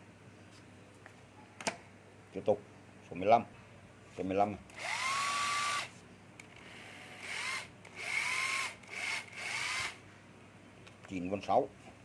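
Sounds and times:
cordless drill motor whine: 4.7s - 5.9s, 6.6s - 10.0s.

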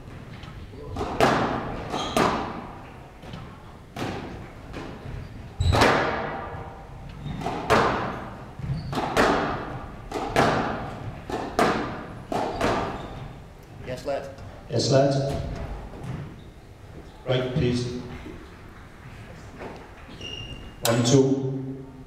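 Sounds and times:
squash ball striking rackets and walls: 0.0s - 13.5s, 15.1s - 16.4s.

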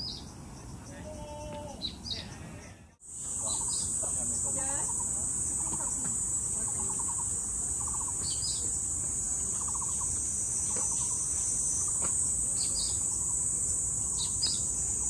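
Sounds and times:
cicada chorus buzzing: 3.0s - 15.0s.

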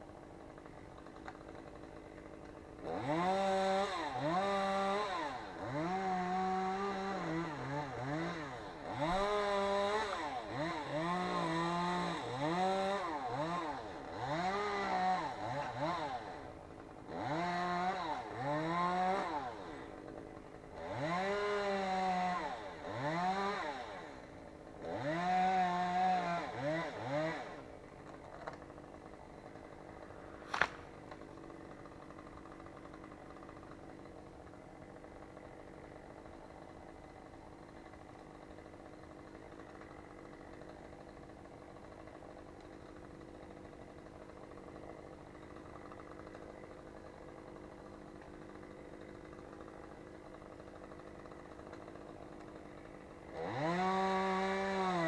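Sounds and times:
chainsaw revving: 0.0s - 55.0s.

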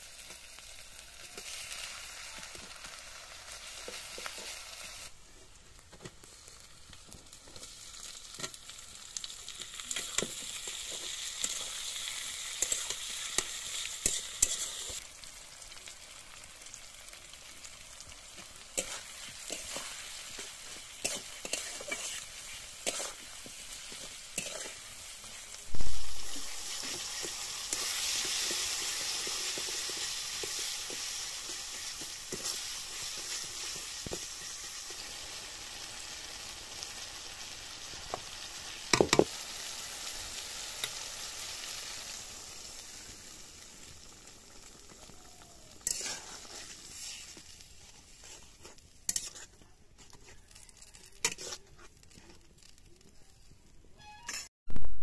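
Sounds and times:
masala sizzling in a pan: 0.0s - 54.4s
metal spatula scraping a pan: 10.0s - 15.0s, 18.3s - 35.4s, 45.8s - 52.8s, 54.0s - 54.5s.

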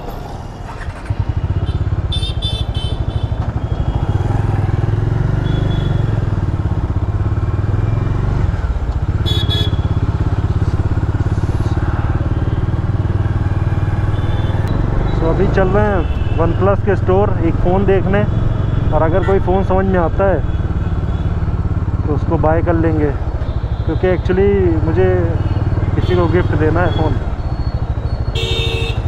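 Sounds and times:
city traffic: 0.0s - 29.0s
motorcycle engine pulling away: 0.4s - 15.8s.

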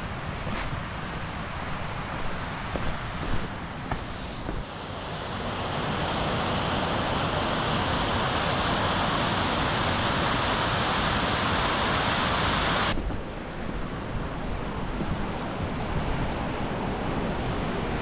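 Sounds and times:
water cascading over rocks: 4.0s - 13.0s.

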